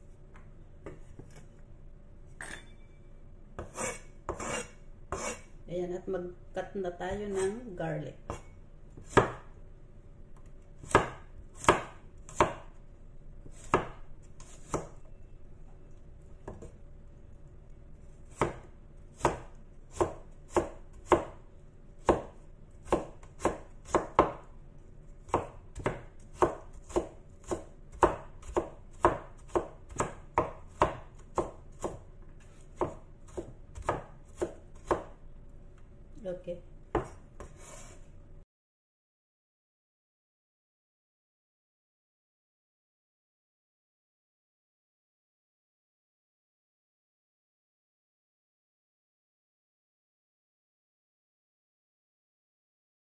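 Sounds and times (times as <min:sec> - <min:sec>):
cleaver chopping on cutting board: 0:03.6 - 0:05.4, 0:09.0 - 0:09.4, 0:10.9 - 0:12.6, 0:18.4 - 0:21.3, 0:22.0 - 0:24.4, 0:25.3 - 0:32.0, 0:32.8 - 0:35.2, 0:36.9 - 0:37.6.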